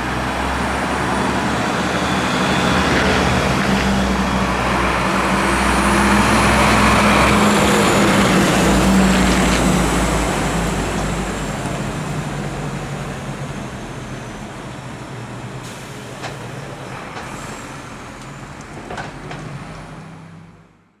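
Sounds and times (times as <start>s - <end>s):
diesel truck engine driving away: 0.0s - 20.9s.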